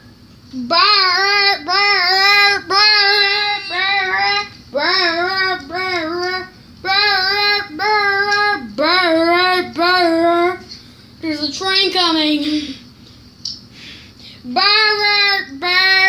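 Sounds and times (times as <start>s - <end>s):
child singing held notes: 0.5s - 10.7s.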